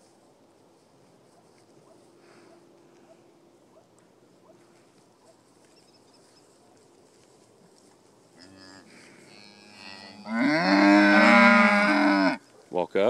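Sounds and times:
cow mooing faintly: 0:08.4 - 0:12.4.

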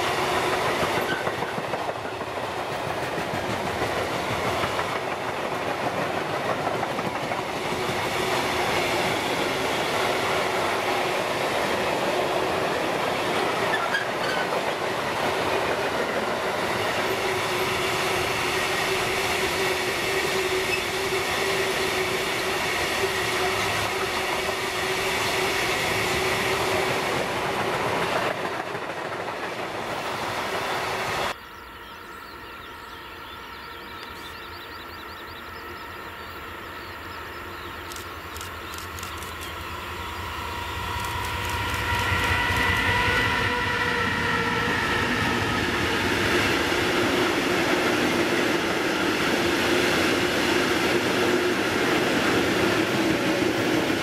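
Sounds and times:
freight train rolling past: 0:00.0 - 0:54.0
wheels clacking over rail joints: 0:00.4 - 0:17.2.

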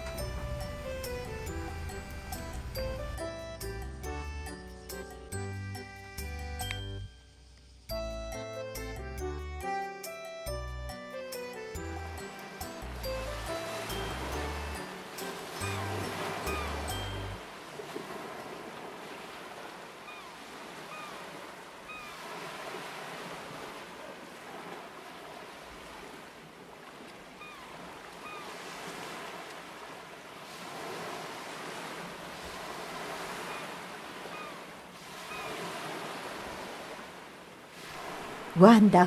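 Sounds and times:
sea waves washing ashore: 0:00.0 - 0:03.8, 0:12.2 - 0:39.0.

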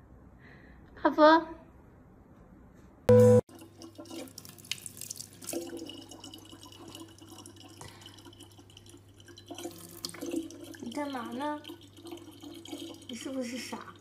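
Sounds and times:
water trickling into plastic bottle: 0:03.5 - 0:14.0.

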